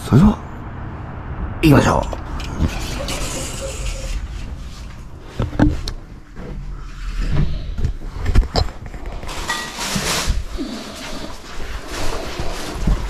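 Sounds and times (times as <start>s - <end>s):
knocks and clunks: 2.0s - 9.4s.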